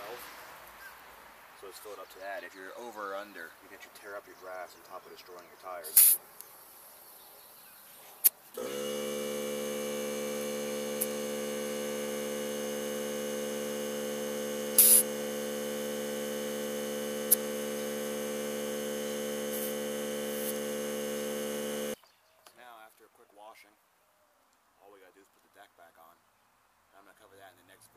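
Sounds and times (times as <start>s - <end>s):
short hiss of air: 5.8s - 6.2s, 14.6s - 15.2s, 19.4s - 20.9s
air compressor motor humming: 8.5s - 22.0s.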